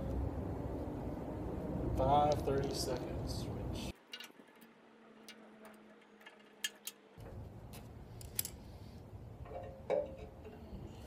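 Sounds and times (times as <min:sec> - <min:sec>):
allen key metallic clicks: 0:07.7 - 0:08.6.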